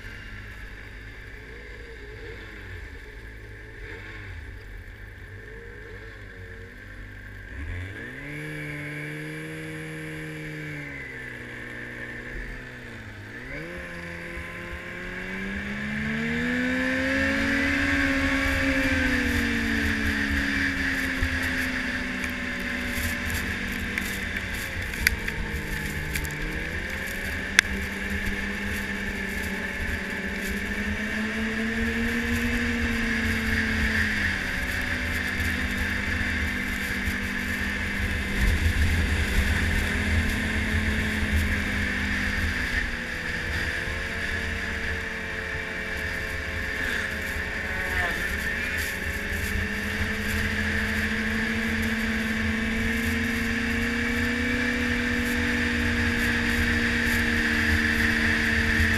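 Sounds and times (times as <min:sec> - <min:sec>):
snowmobile engine revving: 0:00.0 - 0:58.9.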